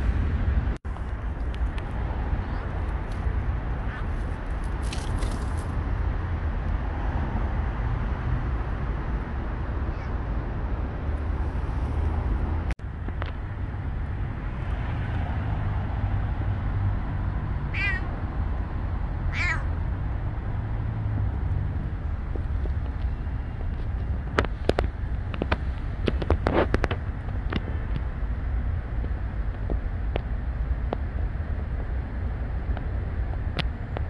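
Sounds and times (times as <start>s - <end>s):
steady low rumble: 0.0s - 34.0s
cat meowing: 17.7s - 18.1s, 19.3s - 19.8s.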